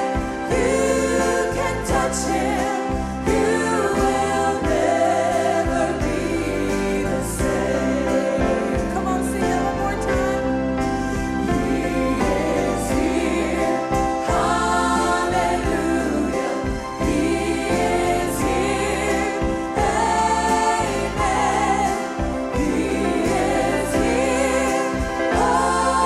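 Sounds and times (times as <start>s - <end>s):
woman singing lead: 0.0s - 10.8s
backing singers: 0.0s - 26.0s
band with guitars keyboard and bass: 0.0s - 26.0s.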